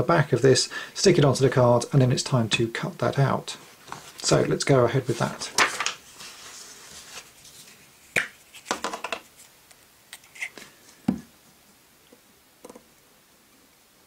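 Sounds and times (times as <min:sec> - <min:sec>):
paper rustling: 0:03.8 - 0:09.5.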